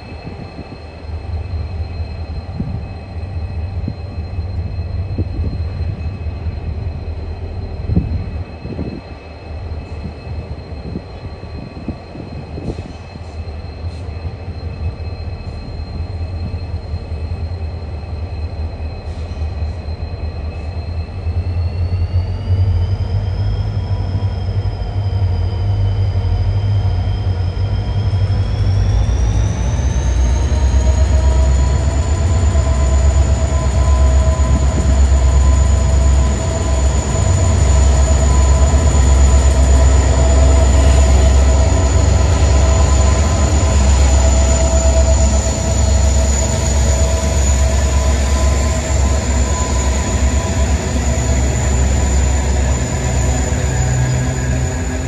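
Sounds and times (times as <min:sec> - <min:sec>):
diesel locomotives rumbling and whining: 0:00.0 - 0:55.0.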